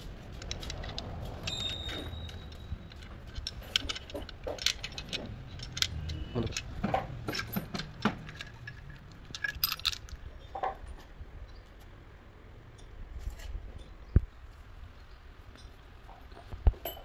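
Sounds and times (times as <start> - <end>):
metal pump parts clinking: 0.0 - 10.2.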